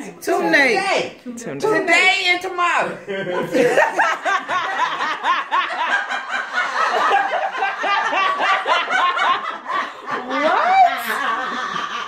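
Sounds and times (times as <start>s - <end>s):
women laughing: 2.9s - 12.0s.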